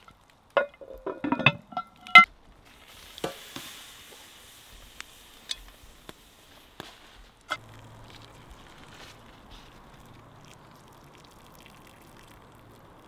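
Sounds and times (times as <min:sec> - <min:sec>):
campfire sizzling and crackling: 0:00.0 - 0:13.0
metal pot knock: 0:00.6 - 0:02.2.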